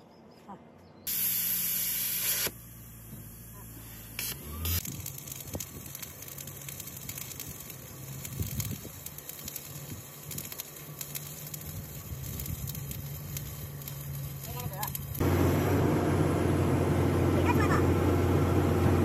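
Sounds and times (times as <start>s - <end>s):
welding arc crackling sizzle: 1.1s - 15.6s.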